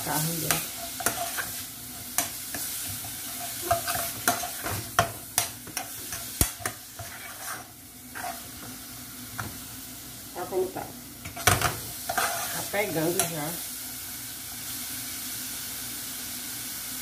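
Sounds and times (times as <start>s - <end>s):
cabbage sizzling in a pan: 0.0s - 17.0s
metal spoon scraping a pan: 0.2s - 8.7s, 11.2s - 13.5s.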